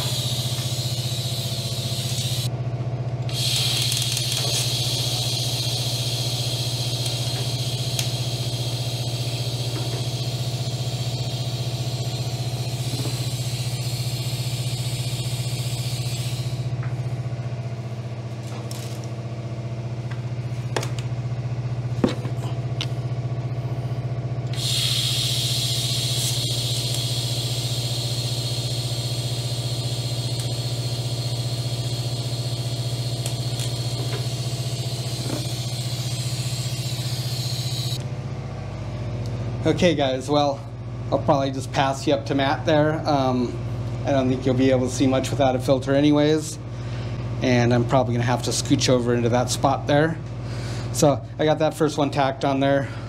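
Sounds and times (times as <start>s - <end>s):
welding hiss: 0.0s - 2.5s, 3.3s - 16.8s, 24.5s - 38.0s
welder low hum: 0.0s - 53.0s.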